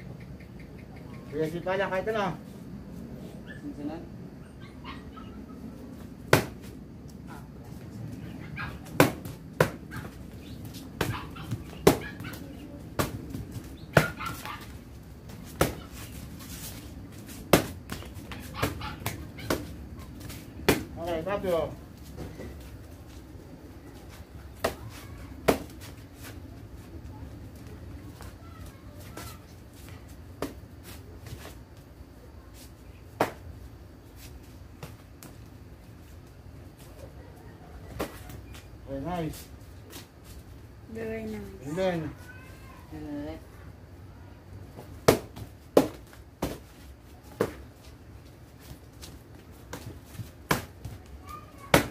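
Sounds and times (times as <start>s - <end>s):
kicks smacking kick paddles: 6.3s - 6.7s, 8.9s - 10.2s, 10.9s - 12.4s, 13.0s - 14.7s, 17.5s - 19.7s, 20.6s - 21.0s, 33.2s - 33.4s, 45.0s - 46.7s, 51.7s - 51.9s.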